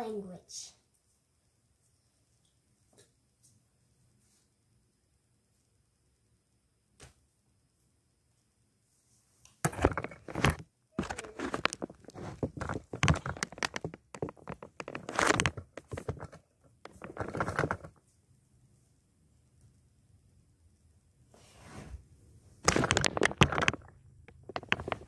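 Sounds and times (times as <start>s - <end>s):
handling noise on microphone: 9.6s - 18.0s, 22.6s - 25.0s.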